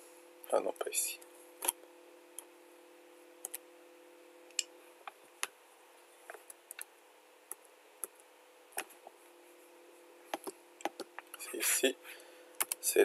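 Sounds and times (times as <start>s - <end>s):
faint steady hum: 0.0s - 13.0s
computer mouse and keyboard clicks: 10.3s - 11.4s, 12.6s - 12.8s.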